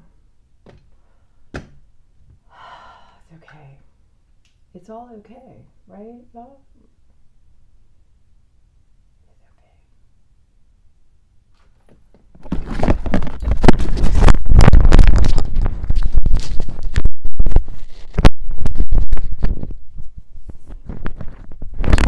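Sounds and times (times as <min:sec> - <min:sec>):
clip microphone rubbing and clicking: 0:11.6 - 0:22.0.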